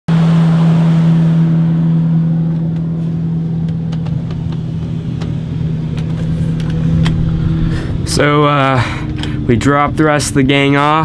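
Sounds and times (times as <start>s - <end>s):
boat engine droning: 0.1s - 11.0s.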